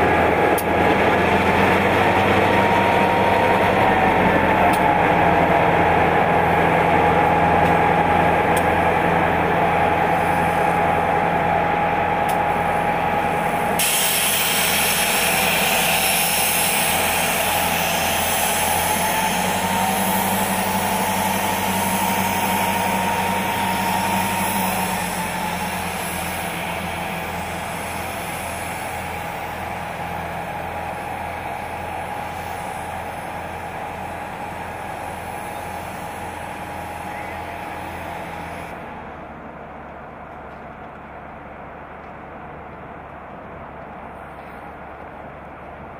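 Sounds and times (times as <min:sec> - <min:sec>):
diesel locomotive engine drone: 0:00.0 - 0:45.9
hiss: 0:13.3 - 0:38.9.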